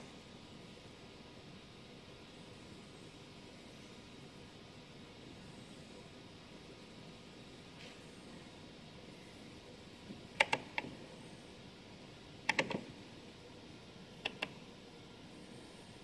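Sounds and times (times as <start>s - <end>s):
rotary switch knobs clicking: 10.3s - 11.0s, 12.4s - 12.9s, 14.2s - 14.6s.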